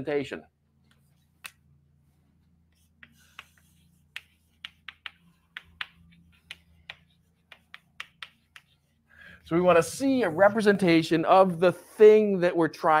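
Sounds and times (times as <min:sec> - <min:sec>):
chalk tapping on blackboard: 0:02.7 - 0:09.0.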